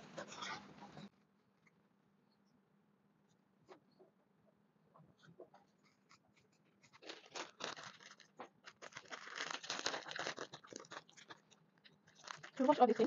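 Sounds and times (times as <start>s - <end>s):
plastic crinkling: 5.8s - 13.0s.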